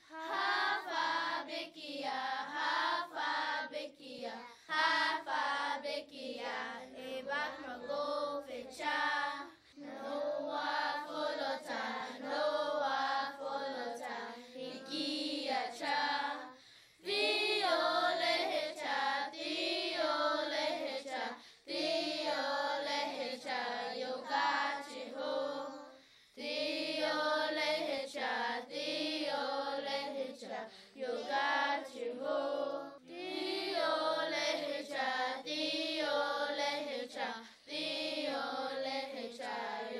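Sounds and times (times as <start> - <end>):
children singing: 0.0 - 39.9.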